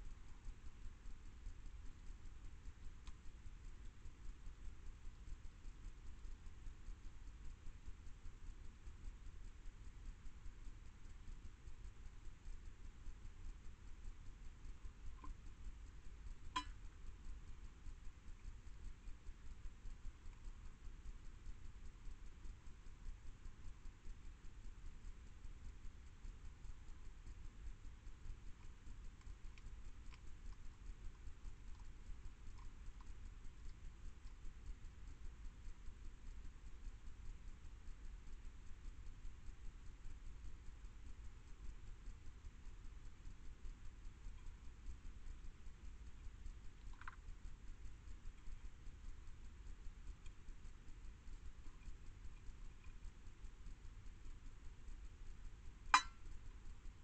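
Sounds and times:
low hum: 0:00.0 - 0:57.0
microphone hiss and rumble: 0:00.0 - 0:57.0
ticks and taps on metal bowl: 0:16.6 - 0:16.8, 0:55.9 - 0:56.2.

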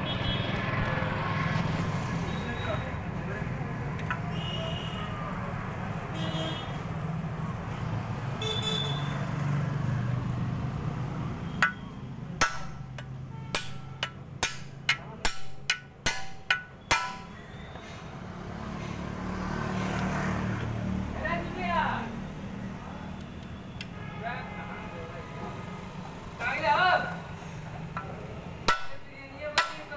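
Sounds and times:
hammer striking rivet punch: 0:12.4 - 0:17.3.

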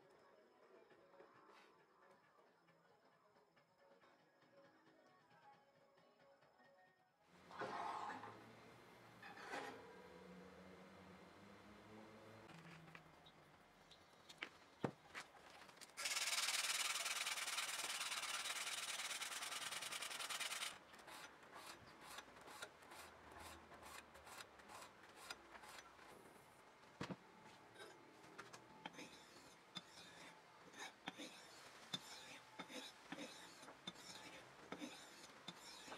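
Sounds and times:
pad scrubbing knife blade: 0:16.0 - 0:25.8, 0:28.9 - 0:35.9.

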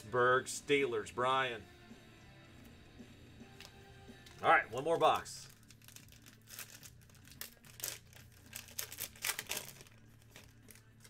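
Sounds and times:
foil wrapper crinkling and tearing: 0:04.3 - 0:11.0.

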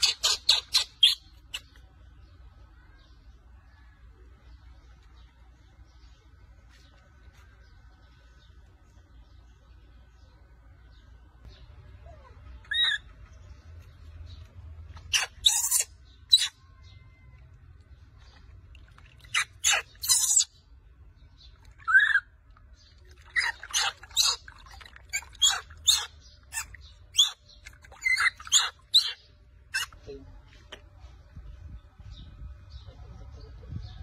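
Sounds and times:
baby monkey squealing: 0:00.0 - 0:01.7, 0:12.1 - 0:13.1, 0:15.0 - 0:16.6, 0:19.2 - 0:20.6, 0:21.8 - 0:22.3, 0:23.2 - 0:30.0.

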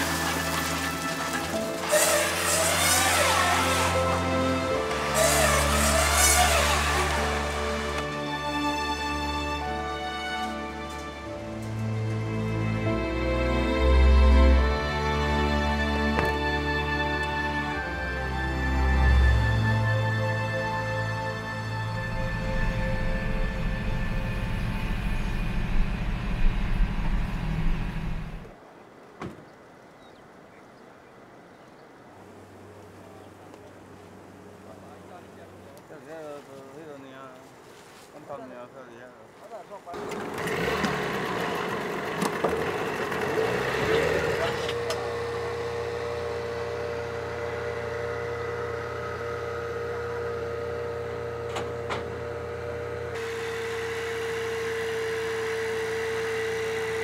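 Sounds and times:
outboard motor humming: 0:00.0 - 0:10.1, 0:19.2 - 0:28.5, 0:40.0 - 0:57.0
vehicle engine rumbling: 0:20.2 - 0:28.6, 0:39.8 - 0:56.8.

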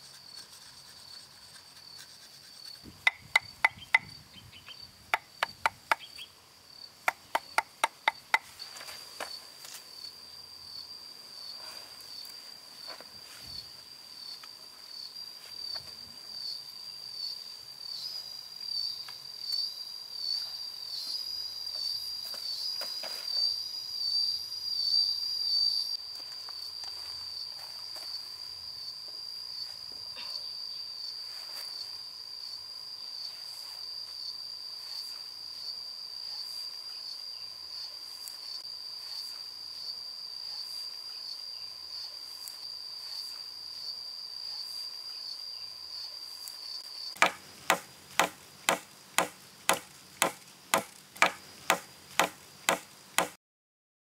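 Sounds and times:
insects chirring: 0:00.0 - 0:53.4
chisel knocking into log: 0:03.1 - 0:04.1, 0:07.1 - 0:08.4, 0:47.2 - 0:53.3.

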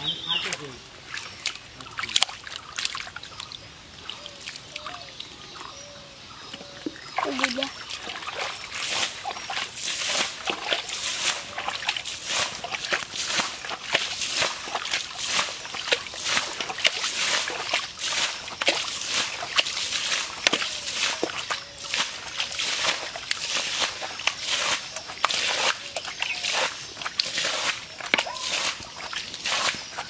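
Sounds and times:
mud splattering on ground: 0:00.4 - 0:05.2, 0:06.8 - 0:30.0
water sloshing and splashing: 0:00.4 - 0:05.8, 0:06.4 - 0:30.0.

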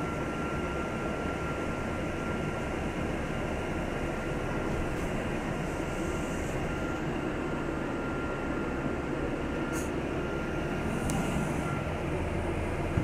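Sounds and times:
bus engine and road rumble: 0:00.0 - 0:13.0
faint thin whine: 0:04.6 - 0:12.3.

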